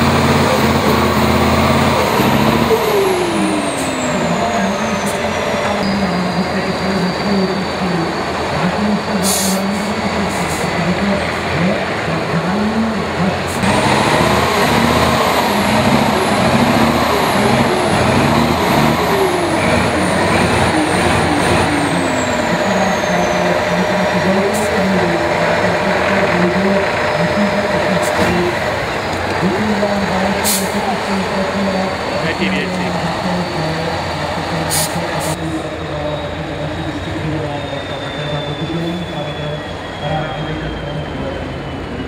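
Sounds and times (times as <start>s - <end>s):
diesel truck engine revving: 0.0s - 42.0s.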